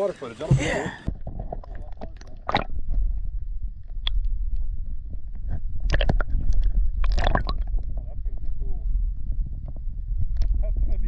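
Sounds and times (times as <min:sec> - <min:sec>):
water splashes: 0:00.0 - 0:03.0, 0:05.8 - 0:07.8
underwater rumble and sloshing: 0:00.0 - 0:11.0.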